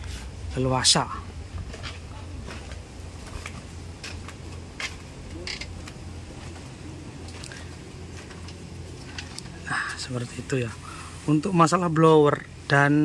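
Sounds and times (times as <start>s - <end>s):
steady low hum: 0.0s - 13.0s
footsteps: 1.1s - 9.6s
creaks and clicks: 3.4s - 6.7s, 7.3s - 9.6s.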